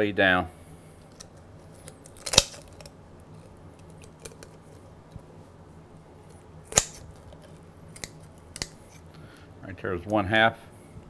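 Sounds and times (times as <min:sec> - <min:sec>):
shears snapping through bone: 0:01.1 - 0:02.9, 0:06.7 - 0:09.0
shear blades clicking: 0:06.7 - 0:07.1.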